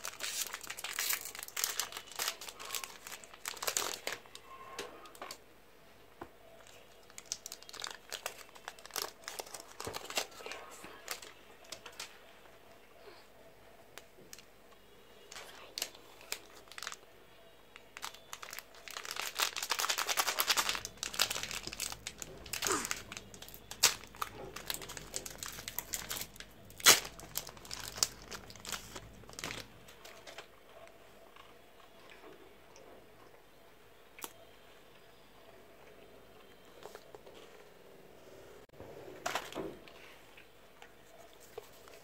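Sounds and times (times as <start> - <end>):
candy wrapper crinkling: 0.0 - 4.5, 6.6 - 12.2, 15.3 - 17.0, 17.8 - 30.5.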